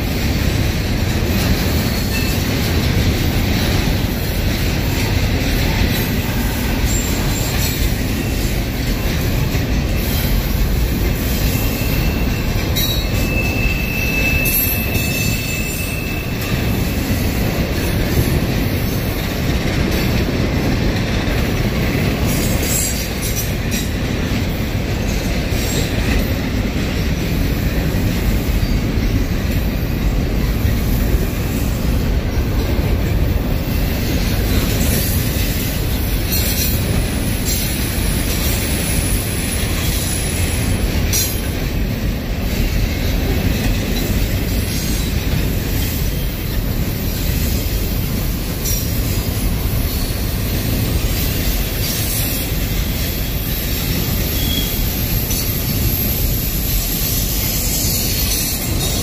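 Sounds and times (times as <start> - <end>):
train wheels rumbling on rail: 0.0 - 59.0
wheel squeal: 11.3 - 16.9, 51.2 - 59.0.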